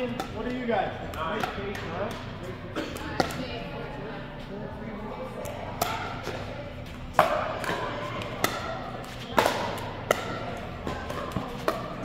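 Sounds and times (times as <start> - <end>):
paddles hitting plastic ball: 7.1 - 12.0.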